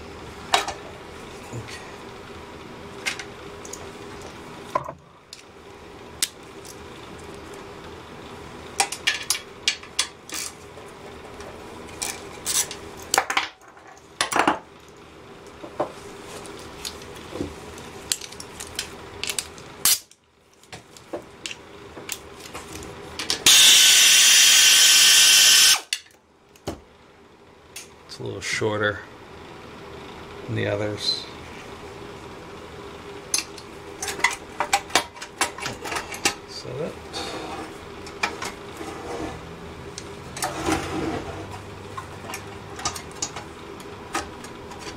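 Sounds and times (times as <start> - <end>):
cordless electric ratchet running: 23.4 - 25.9.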